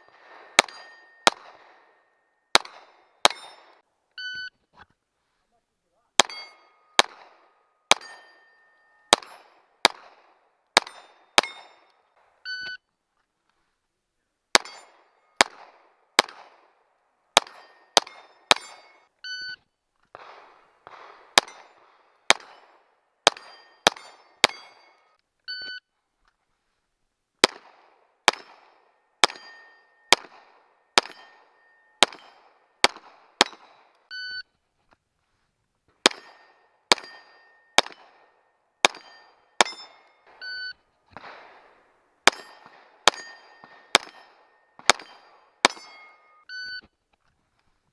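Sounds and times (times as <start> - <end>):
pistol shots: 0.0 - 3.8, 6.2 - 12.4, 14.5 - 19.0, 20.1 - 25.2, 27.4 - 34.1, 36.0 - 40.4, 41.1 - 46.4
steel plates ringing: 0.6 - 1.4, 3.3 - 3.7, 6.2 - 7.0, 7.9 - 9.4, 10.8 - 11.9, 17.4 - 19.1, 23.3 - 25.2, 29.2 - 30.1, 31.0 - 32.4, 38.9 - 40.3, 42.3 - 46.4
shot timer beep: 4.2 - 4.5, 12.5 - 12.8, 19.2 - 19.6, 34.1 - 34.4, 39.7 - 40.8, 45.9 - 46.8.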